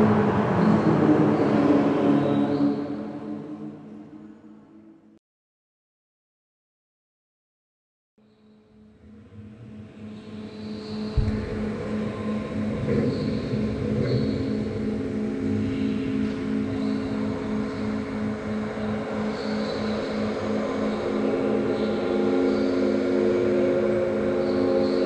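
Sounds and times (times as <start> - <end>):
pulsing low tone: 11.1 - 14.1
thump: 11.2 - 11.9.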